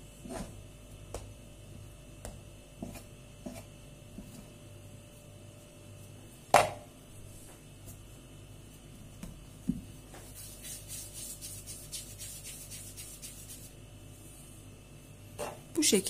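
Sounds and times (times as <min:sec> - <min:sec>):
hands rolling dough on wooden board: 0:02.2 - 0:04.6, 0:08.7 - 0:13.8.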